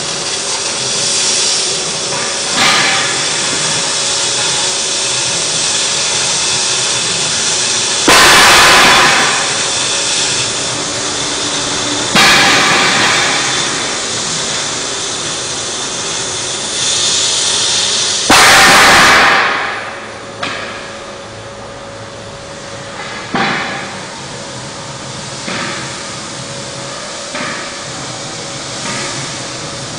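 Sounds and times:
cutting torch hissing: 0:00.0 - 0:20.1.

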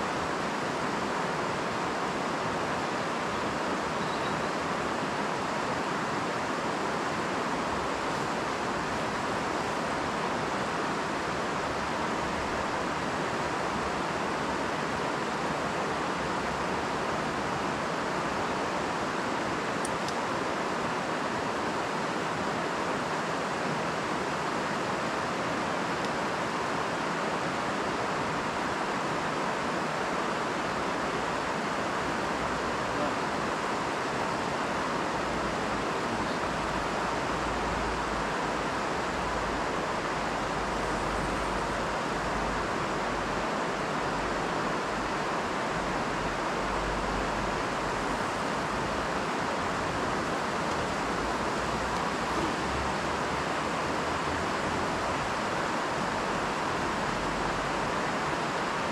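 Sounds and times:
river water rushing over weir: 0:00.0 - 0:58.9.

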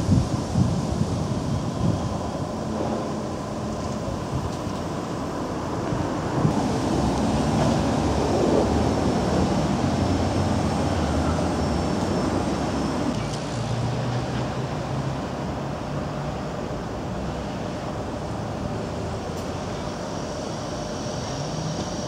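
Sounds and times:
tram running hum: 0:00.0 - 0:22.0
wheel on rail rumble: 0:00.0 - 0:22.0.

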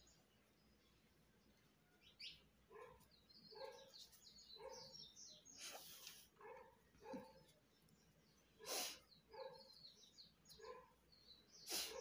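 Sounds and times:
birds chirping: 0:00.0 - 0:12.0
faint dog barking: 0:02.7 - 0:05.0, 0:06.3 - 0:07.6, 0:08.5 - 0:09.8, 0:10.5 - 0:11.1, 0:11.7 - 0:12.0.

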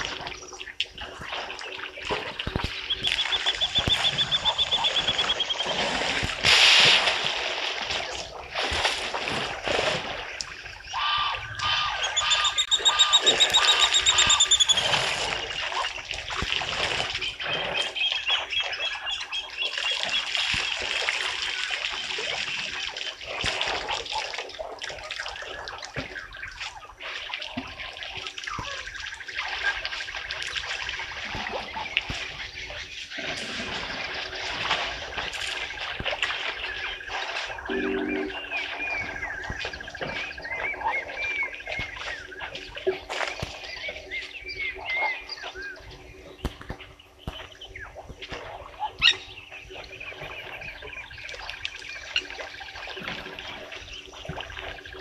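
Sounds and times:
water splashing and trickling: 0:00.0 - 0:55.0
birds trilling: 0:02.6 - 0:06.2, 0:10.7 - 0:16.0, 0:36.4 - 0:48.0.

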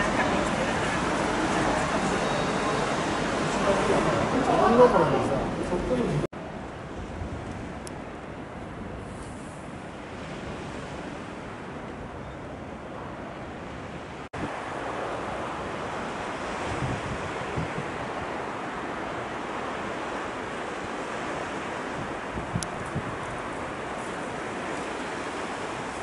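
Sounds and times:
tidal current surging: 0:00.0 - 0:06.3, 0:14.0 - 0:26.0
wind on microphone: 0:12.8 - 0:26.0
low wind thumps on microphone: 0:16.4 - 0:18.3, 0:21.8 - 0:24.2.

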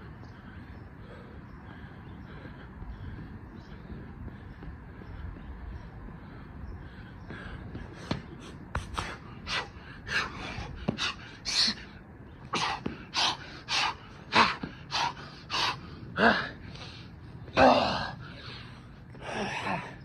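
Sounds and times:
man panting hard: 0:00.0 - 0:20.0.

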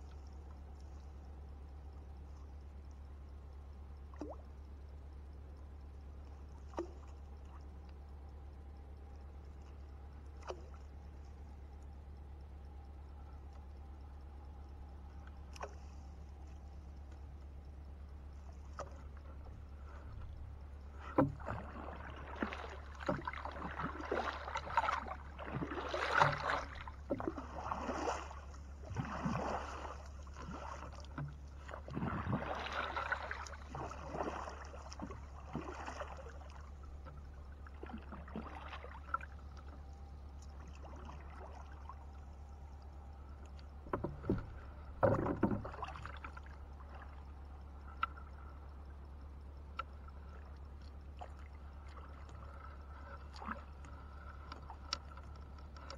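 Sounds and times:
paddle splashing in water: 0:10.4 - 0:10.9, 0:18.4 - 0:39.8, 0:40.4 - 0:42.2, 0:43.8 - 0:47.3, 0:51.2 - 0:55.9.

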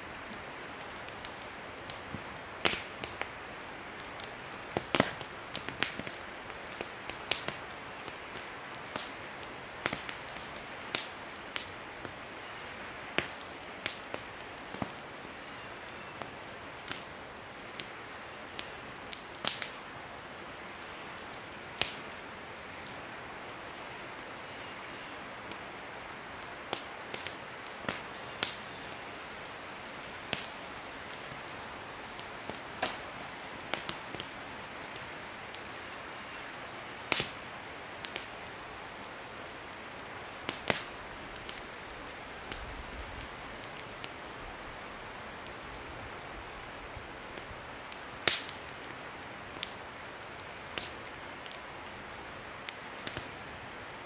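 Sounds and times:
steady rushing hiss: 0:00.0 - 0:15.4
campfire crackling and popping: 0:00.0 - 0:54.0.

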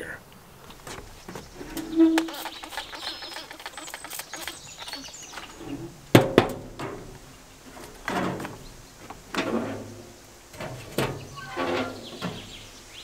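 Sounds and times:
spray bottle spritzes: 0:01.9 - 0:05.6
heavy steel lid clanging shut: 0:10.6 - 0:12.5.

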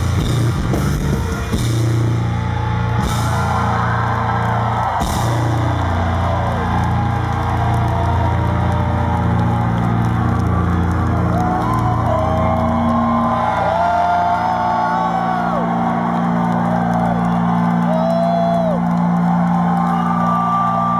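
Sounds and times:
voices whooping and wailing: 0:02.6 - 0:20.9.

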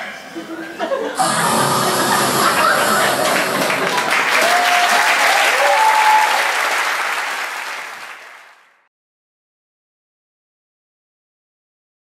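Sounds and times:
audience applauding: 0:01.2 - 0:08.8.

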